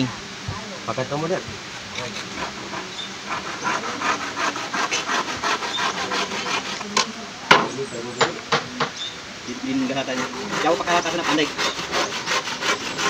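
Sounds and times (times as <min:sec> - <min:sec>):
handsaw rasping through wood: 0:02.0 - 0:06.9, 0:09.7 - 0:13.0.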